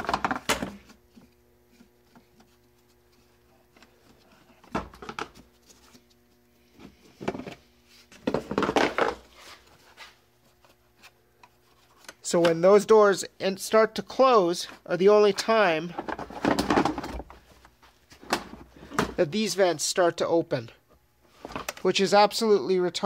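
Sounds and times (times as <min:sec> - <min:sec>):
plastic parts knocking and scraping: 0:00.0 - 0:02.6, 0:03.7 - 0:06.0, 0:06.7 - 0:09.3, 0:15.9 - 0:17.4.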